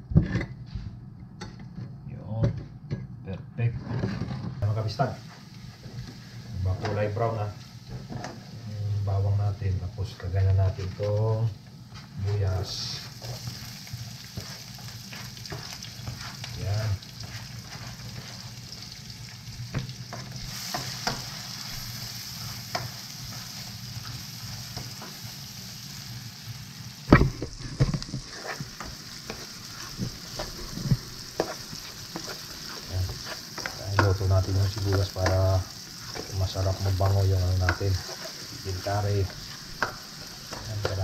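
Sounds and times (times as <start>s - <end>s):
onion sizzling in hot oil: 4.6s - 41.0s
spatula scraping a pan: 13.0s - 18.9s, 20.1s - 25.2s, 27.5s - 41.0s.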